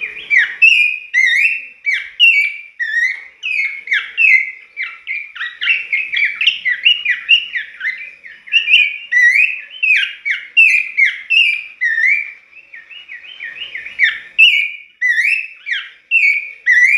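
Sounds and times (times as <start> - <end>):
bird singing whistled notes: 0.0 - 16.9.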